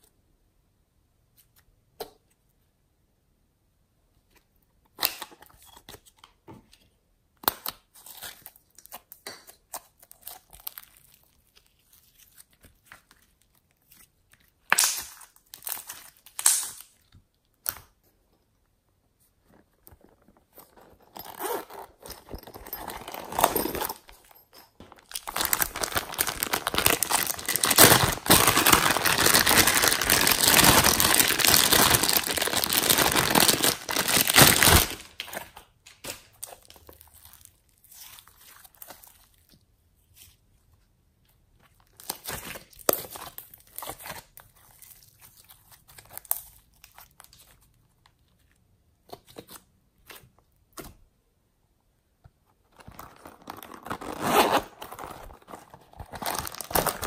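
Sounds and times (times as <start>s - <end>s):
plastic bag crinkling: 19.9s - 35.5s, 52.7s - 57.0s.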